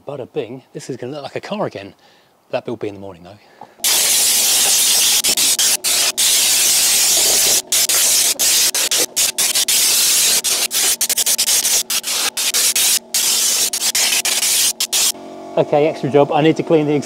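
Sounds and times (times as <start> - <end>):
spray gun hissing: 3.8 - 15.2.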